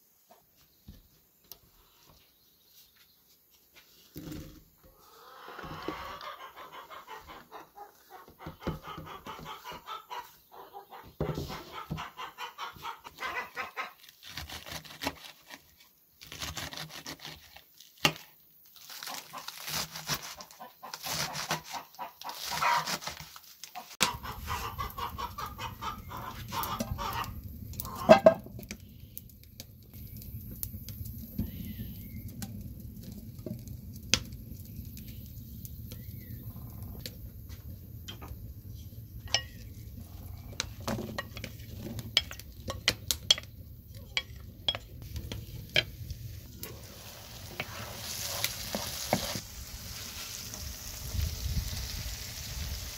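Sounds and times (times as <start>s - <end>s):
hens clucking: 4.9s - 14.0s, 20.4s - 23.0s, 23.7s - 28.5s
hen squawk: 24.0s - 28.2s.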